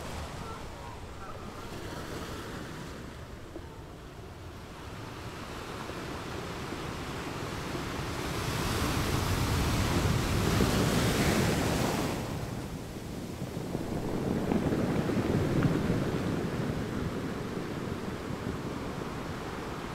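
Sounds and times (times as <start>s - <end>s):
ocean waves rushing: 0.0s - 19.9s
steady surf wash: 0.0s - 19.9s.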